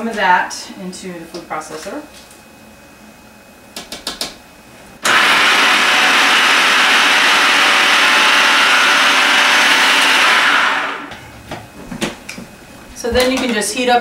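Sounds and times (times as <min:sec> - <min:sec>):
food processor blending: 0:05.0 - 0:11.1.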